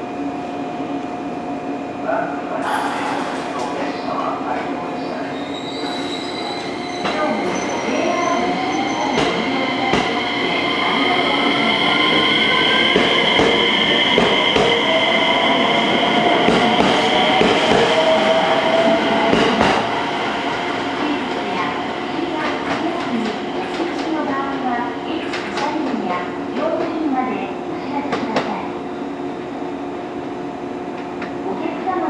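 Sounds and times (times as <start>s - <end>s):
high-pitched wheel squeal: 5.3s - 9.2s.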